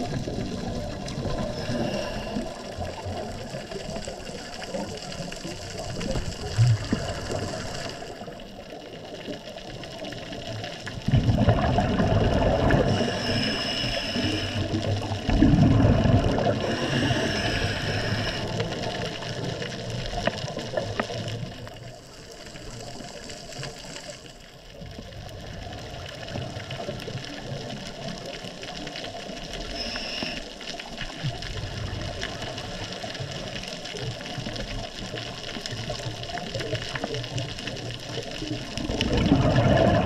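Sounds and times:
faint underwater clicks: 0.0s - 40.0s
underwater water rush: 0.0s - 40.0s.

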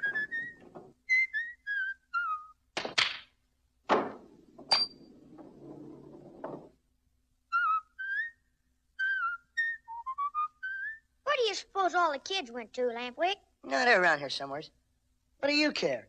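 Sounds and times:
cartoon whistling tune: 0.0s - 2.7s, 7.5s - 11.2s
pool balls clacking: 2.8s - 6.8s
pool ball rolling rumble: 3.9s - 6.8s.

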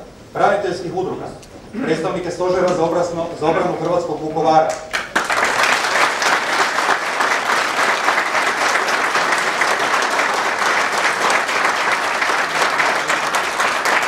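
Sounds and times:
audience applauding: 4.7s - 14.0s.

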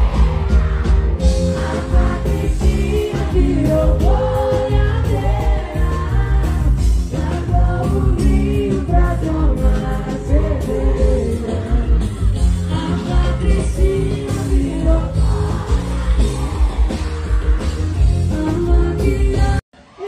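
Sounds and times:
band with heavy bass beat: 0.0s - 19.6s
woman singing into microphone: 1.9s - 12.0s, 12.6s - 15.6s, 18.2s - 20.0s.

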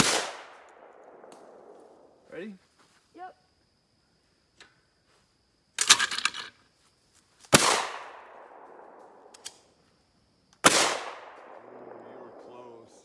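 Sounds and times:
shotgun shot: 0.0s - 1.7s, 7.5s - 9.3s, 10.6s - 12.4s.

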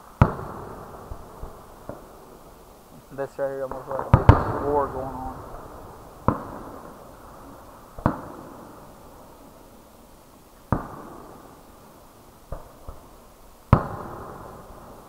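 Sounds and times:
fireworks bangs with echo: 0.0s - 9.7s, 10.7s - 15.0s
faint firework pops: 3.7s - 5.6s, 6.2s - 7.0s, 8.0s - 8.8s, 10.6s - 11.5s, 13.7s - 14.6s.

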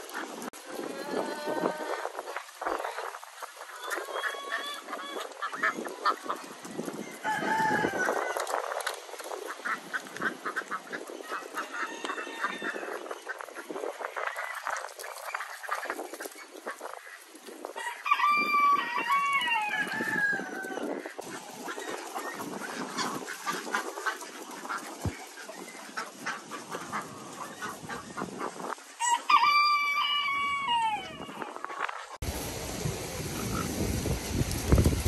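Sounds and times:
rooster crowing: 7.2s - 8.5s, 11.8s - 12.9s, 17.8s - 20.8s, 29.0s - 31.4s.

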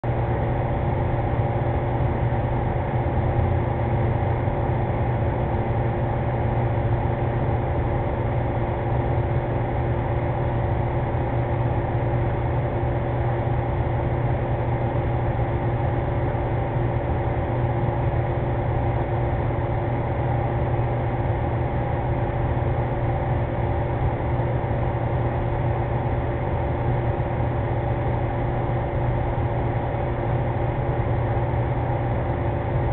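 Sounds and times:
machine hum with constant tones: 0.0s - 32.9s.

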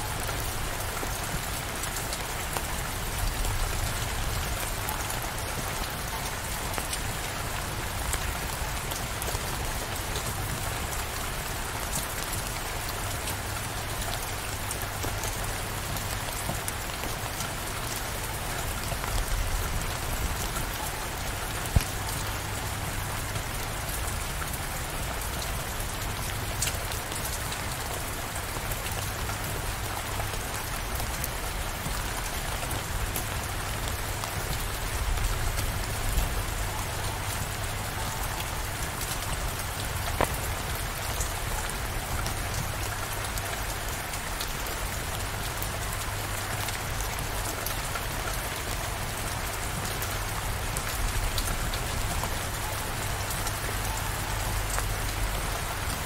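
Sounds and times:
steady rain falling: 0.0s - 56.0s
raindrop ticks: 50.9s - 56.0s.

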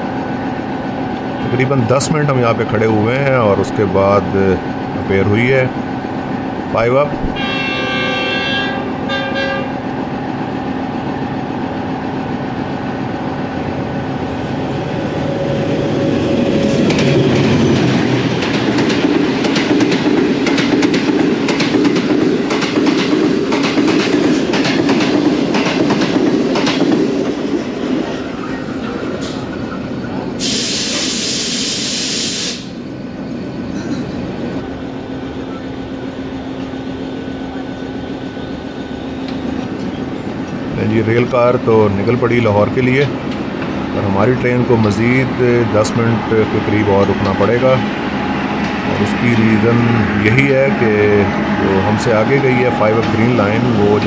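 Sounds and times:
diesel locomotive horn: 7.3s - 10.0s
train wheels clattering over rail joints: 16.7s - 27.5s
short sharp hiss: 30.4s - 32.8s.

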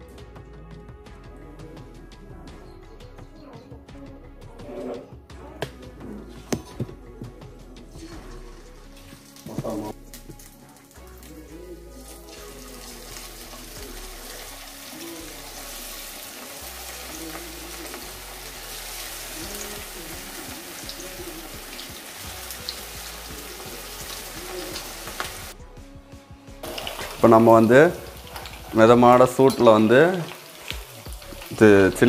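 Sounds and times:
background music: 0.0s - 32.0s
oil crackling: 7.9s - 25.6s, 26.6s - 32.0s
chicken sizzling in hot oil: 8.0s - 25.6s, 26.6s - 32.0s.

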